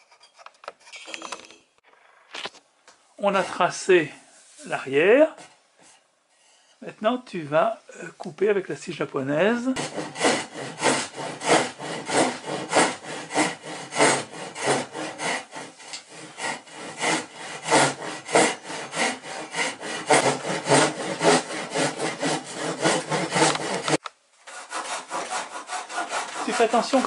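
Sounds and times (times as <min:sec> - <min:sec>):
handsaw cutting wood: 0:09.8 - 0:27.0.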